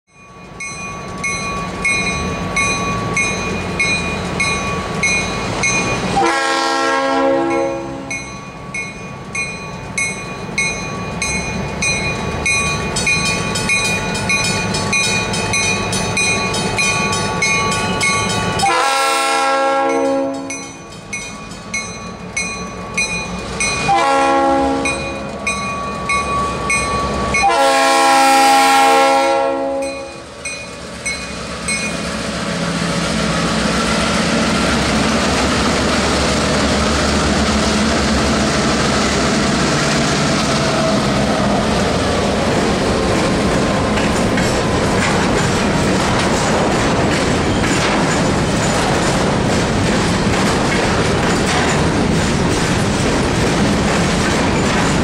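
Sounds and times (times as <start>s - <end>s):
crossing signal bell ringing: 0.1s - 6.4s, 7.4s - 19.0s, 19.8s - 28.2s, 29.6s - 32.1s
locomotive horn blasts: 6.2s - 8.2s, 18.6s - 20.6s, 23.8s - 25.3s, 27.4s - 30.2s
diesel engines rumbling: 30.2s - 55.0s.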